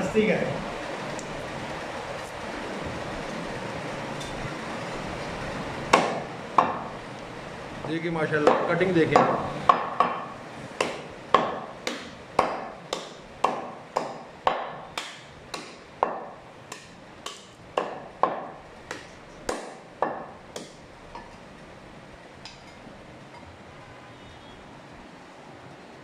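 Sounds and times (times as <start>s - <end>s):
cleaver chopping meat on wood: 5.9s - 6.9s, 8.4s - 20.8s.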